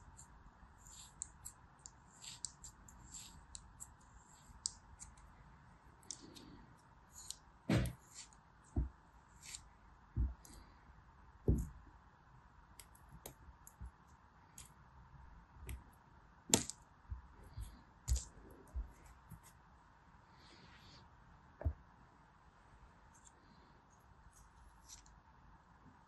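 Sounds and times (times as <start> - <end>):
scissors snipping kinetic sand: 0.0 - 5.3
soft thuds: 7.7 - 8.0, 10.2 - 10.4, 11.4 - 11.8.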